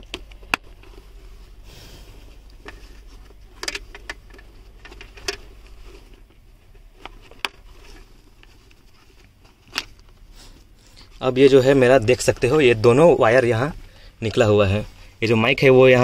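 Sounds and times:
clicks of plastic helmet parts: 0.0s - 1.0s, 2.3s - 11.1s.

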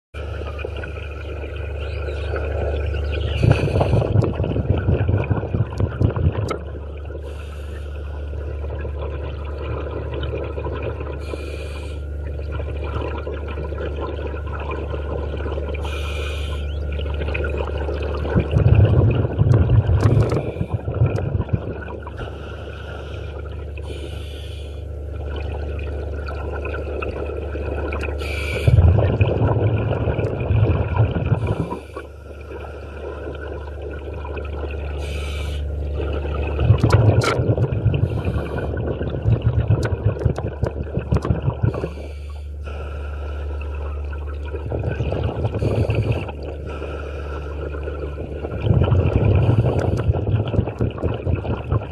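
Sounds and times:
exhaled bubbles gurgling underwater: 0.2s - 51.9s
inhalation through regulator: 11.2s - 12.1s, 15.8s - 16.7s, 22.2s - 24.9s, 28.2s - 29.0s, 31.3s - 33.1s, 35.0s - 35.7s, 38.0s - 38.8s, 41.6s - 43.8s, 45.4s - 47.8s, 49.2s - 50.3s.

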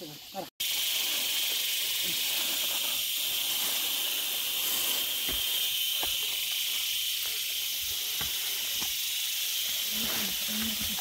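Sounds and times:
insects droning: 0.0s - 11.0s
footsteps on dirt trail: 3.4s - 11.0s.

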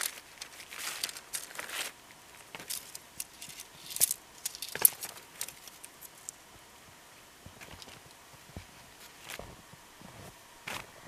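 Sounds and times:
rustling: 0.0s - 6.4s.

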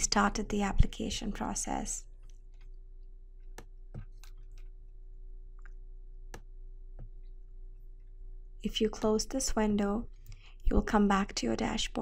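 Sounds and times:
computer mouse clicks: 3.4s - 4.7s.

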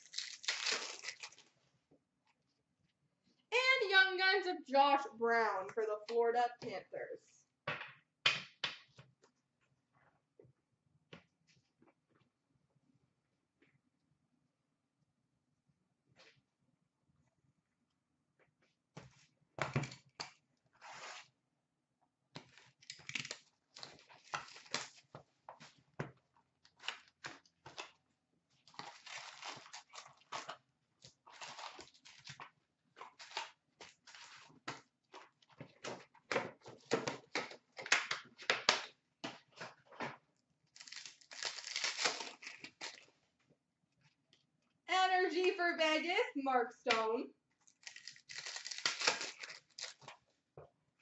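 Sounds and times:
foil packs crinkling: 0.0s - 1.5s, 28.6s - 30.5s, 31.3s - 32.4s, 40.7s - 43.1s, 47.7s - 50.2s.

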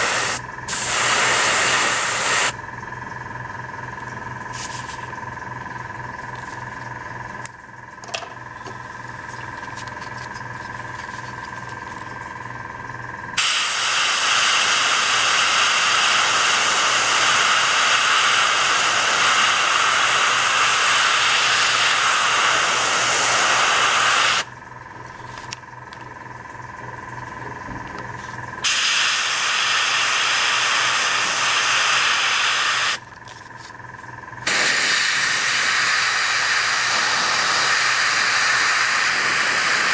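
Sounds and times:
airbrush spraying hiss: 0.0s - 2.6s, 13.4s - 24.5s, 28.6s - 33.0s, 34.4s - 39.9s.

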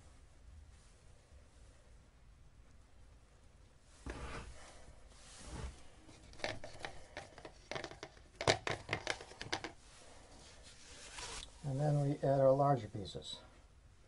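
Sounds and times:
plastic rustling: 4.0s - 11.8s.

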